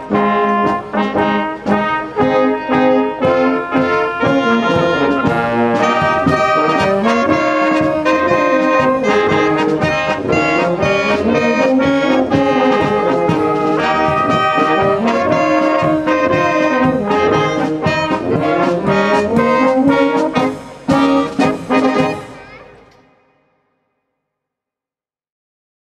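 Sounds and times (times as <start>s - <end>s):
brass band music: 0.0s - 23.2s.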